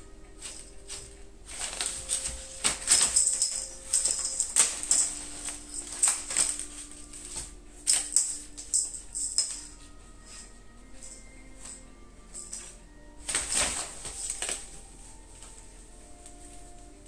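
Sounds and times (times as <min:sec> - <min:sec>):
soft background music: 0:00.0 - 0:17.0
paper bags crinkling and rustling: 0:00.5 - 0:08.5, 0:13.2 - 0:17.0.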